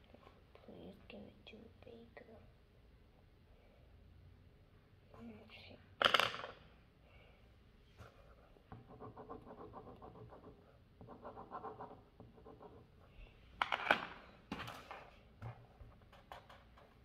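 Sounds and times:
pencils clacking on table: 0:06.0 - 0:06.6, 0:13.6 - 0:17.0
pencil scribbling on paper: 0:08.3 - 0:13.0.

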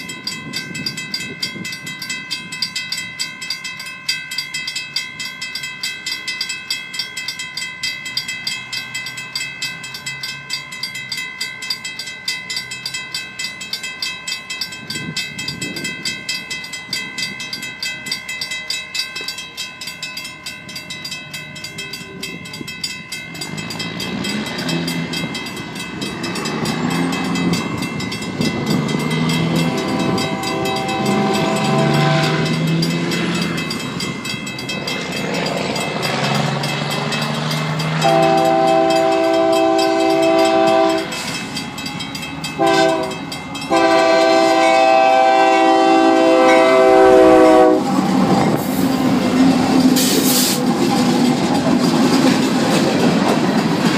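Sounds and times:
railroad crossing bells ringing: 0:00.0 - 0:53.9
locomotive horn: 0:29.4 - 0:32.7, 0:38.0 - 0:41.2, 0:42.6 - 0:48.0.

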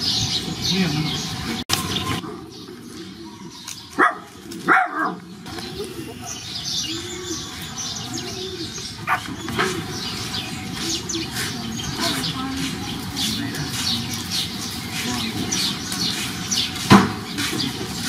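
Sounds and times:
puppies yelping: 0:03.4 - 0:12.3.

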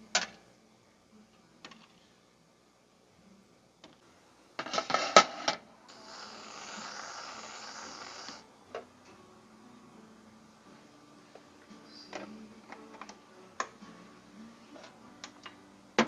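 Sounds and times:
aerosol can spraying hiss: 0:05.9 - 0:08.4.

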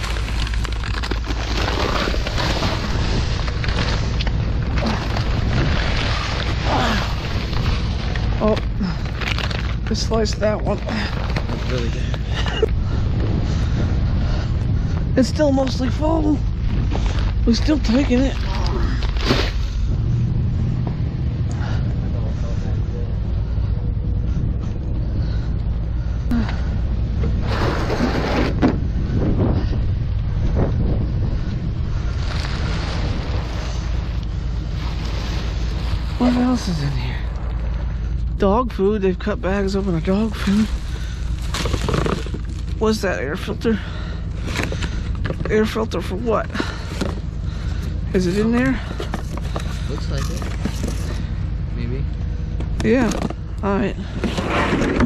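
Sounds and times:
plastic bags rustling: 0:00.0 - 0:12.7, 0:40.2 - 0:42.8
low rumble: 0:00.0 - 0:55.0
wind buffeting microphone: 0:00.0 - 0:55.0.

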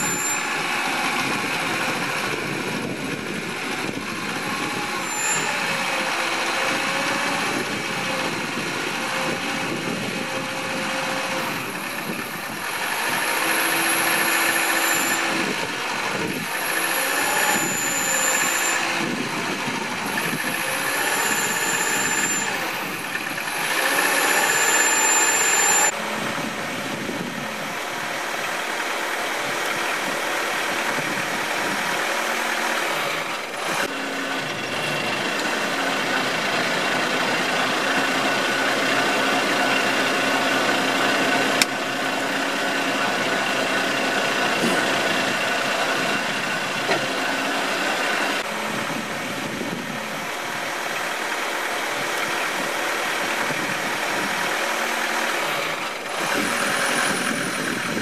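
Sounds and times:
firewood processor engine running: 0:00.0 - 0:58.0.

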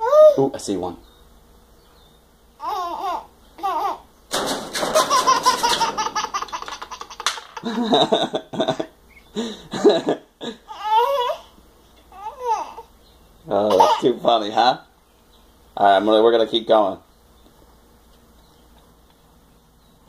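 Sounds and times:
baby giggling: 0:02.6 - 0:04.0, 0:04.9 - 0:08.9, 0:09.8 - 0:11.5, 0:12.2 - 0:12.9, 0:13.7 - 0:14.2.

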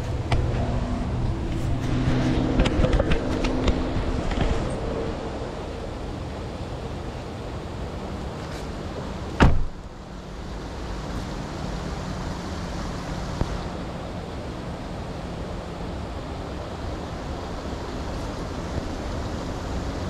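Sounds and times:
car door slamming: 0:09.4 - 0:09.8.

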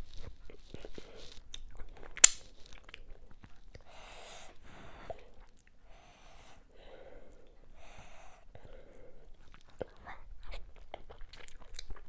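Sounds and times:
heavy breathing through nose: 0:03.8 - 0:09.4.

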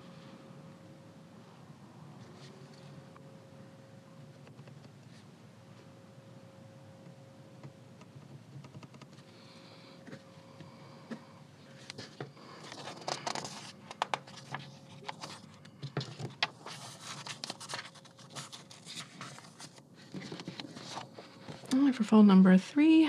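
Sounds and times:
paper rustling and scraping: 0:11.6 - 0:21.7.

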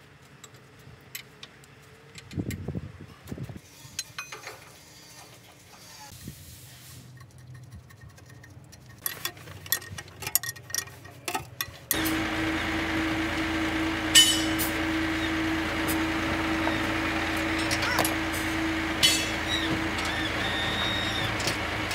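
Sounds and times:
steady machine hum: 0:11.9 - 0:21.9
sharp metal clank: 0:14.2 - 0:14.8, 0:17.6 - 0:19.5.

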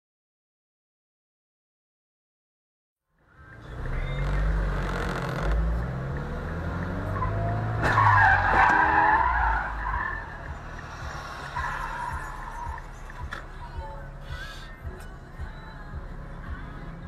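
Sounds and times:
car engines revving: 0:03.2 - 0:14.8
tyre squeal: 0:07.2 - 0:13.4.

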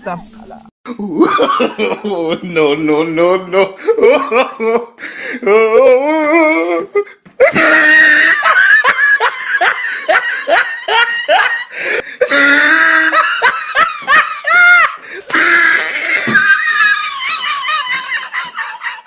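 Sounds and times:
high-pitched laughter: 0:07.4 - 0:11.7, 0:12.3 - 0:19.0.

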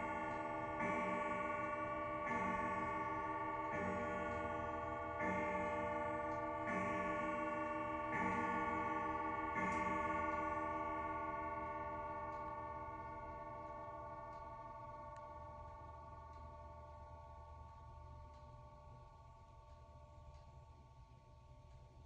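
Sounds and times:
clock gong striking: 0:00.0 - 0:13.2.

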